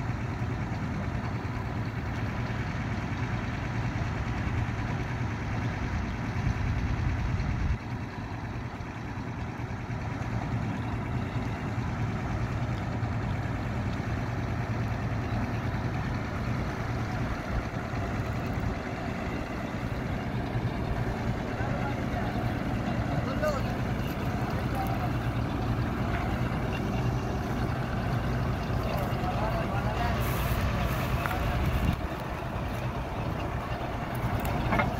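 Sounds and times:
drilling rig engine running: 0.0 - 34.9.

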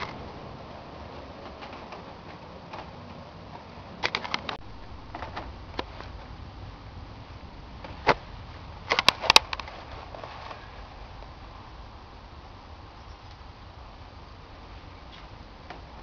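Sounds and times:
sharp clicks and knocks: 1.2 - 6.2, 8.9 - 9.8.

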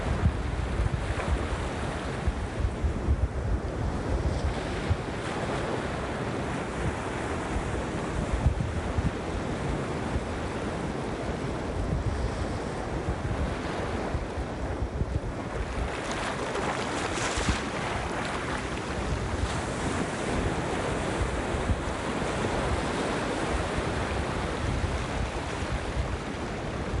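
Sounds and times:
wind rumble on microphone: 0.0 - 27.0
ocean waves washing over rocks: 12.5 - 27.0.

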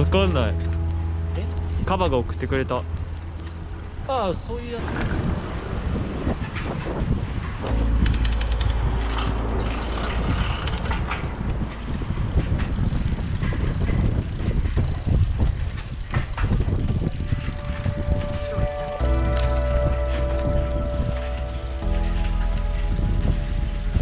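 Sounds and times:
music: 0.0 - 4.5, 7.6 - 11.0, 16.8 - 24.0
bicycle clicks and rattles: 0.0 - 23.5
road rumble: 0.0 - 24.0.

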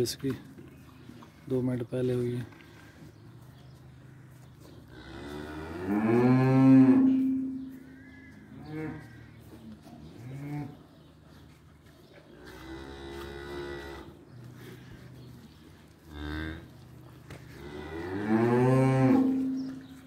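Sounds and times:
cow mooing: 4.9 - 9.2, 17.6 - 19.6.

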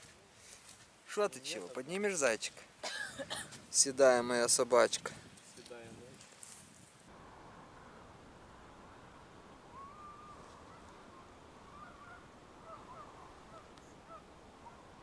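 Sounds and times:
steady background hiss: 0.0 - 15.0
distant geese honking: 9.7 - 15.0.

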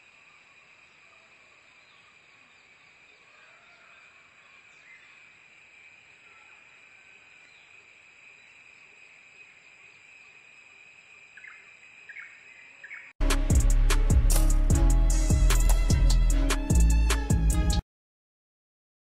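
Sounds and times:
faint bird chirps: 11.3 - 13.2.

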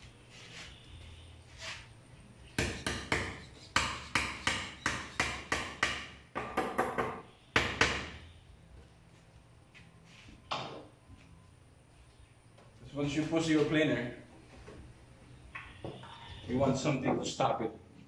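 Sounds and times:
hammer striking wood: 2.6 - 8.2.

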